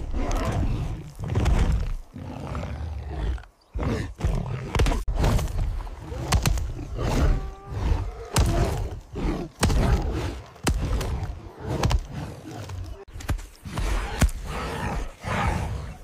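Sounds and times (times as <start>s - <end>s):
animal grunts and roars: 0.0s - 16.0s.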